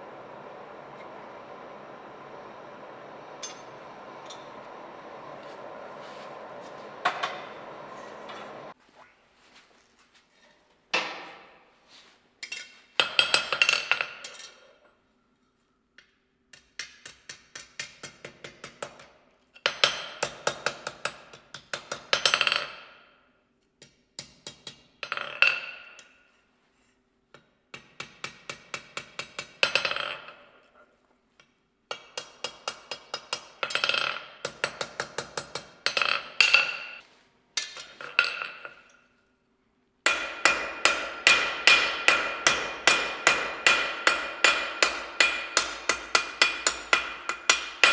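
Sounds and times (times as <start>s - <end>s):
hammer striking iron on anvil: 3.4s - 4.7s, 31.9s - 37.0s, 40.1s - 47.9s.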